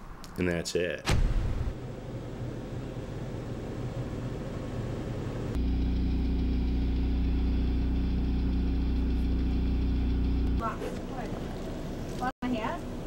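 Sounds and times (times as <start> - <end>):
low machine hum: 1.8 - 12.2.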